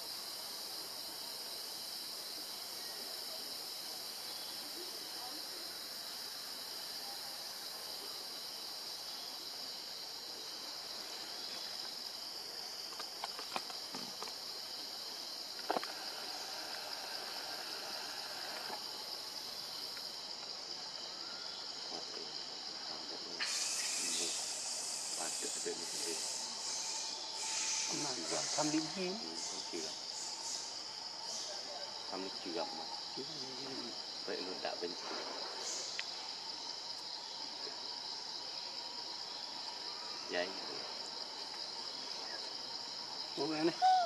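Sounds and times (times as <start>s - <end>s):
insect chorus drone: 0.0s - 44.0s
loud hiss: 23.4s - 29.8s.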